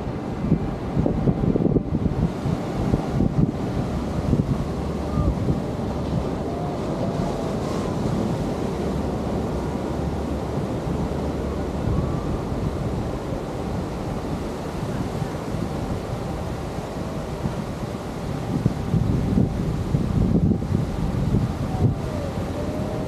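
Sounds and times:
wind buffeting microphone: 0.0s - 23.0s
surf breaking on beach: 0.4s - 23.0s.

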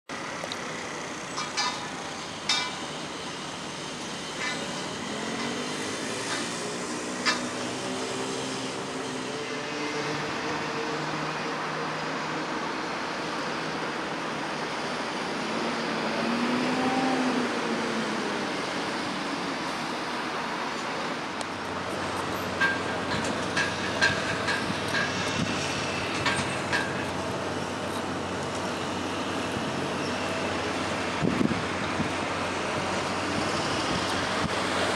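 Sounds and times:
engine and hydraulic noise: 0.1s - 34.9s
machinery drone: 0.1s - 34.9s
sharp metallic knocks: 1.4s - 2.9s, 22.6s - 27.0s.

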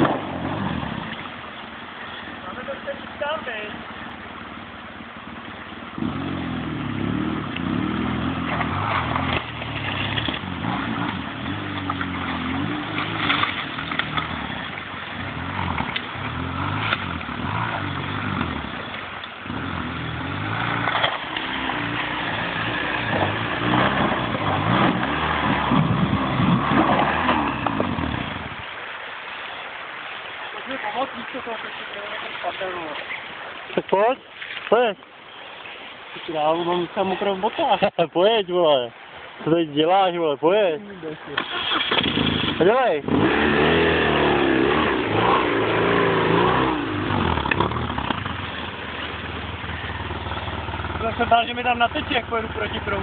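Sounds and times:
motorcycle engine revving: 0.0s - 1.6s, 3.8s - 28.7s, 41.4s - 53.0s.

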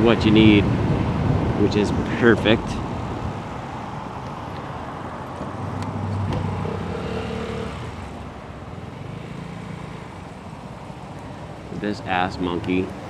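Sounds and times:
wind noise: 0.0s - 8.6s.

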